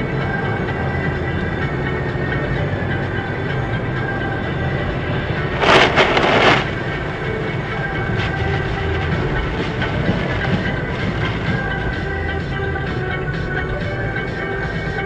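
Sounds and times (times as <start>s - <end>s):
car road and engine rumble: 0.0s - 15.0s
slush spattering windshield: 5.6s - 6.9s.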